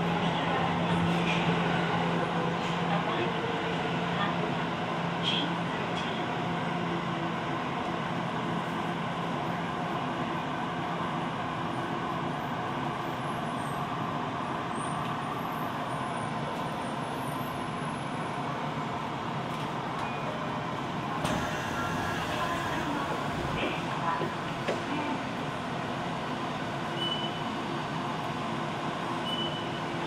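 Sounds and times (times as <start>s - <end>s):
subway car interior noise: 0.0s - 30.0s.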